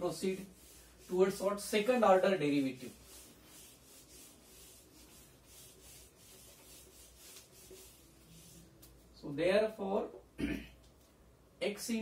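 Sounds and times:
eraser rubbing on whiteboard: 0.0 - 9.0.

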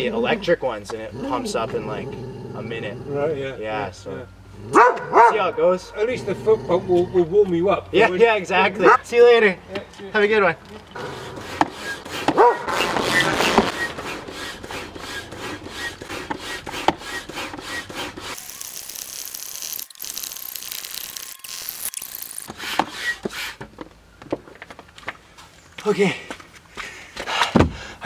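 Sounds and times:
hand pump strokes: 11.0 - 23.7.

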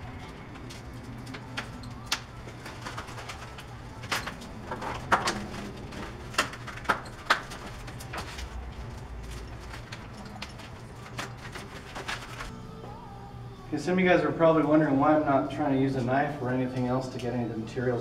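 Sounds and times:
crinkling plastic and paper wrap: 0.0 - 12.6
steady low hum: 0.0 - 18.0
sharp crackles and snaps: 0.5 - 5.5.

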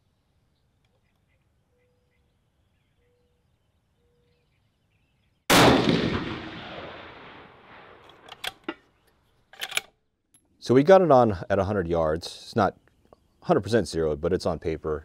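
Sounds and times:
rifle shot echoing: 5.5 - 8.7
metallic clicks of rifle bolt: 8.0 - 10.5.

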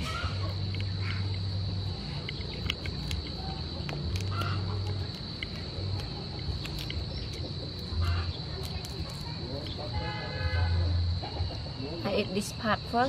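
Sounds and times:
fingers peeling prawn shell: 0.0 - 9.9.

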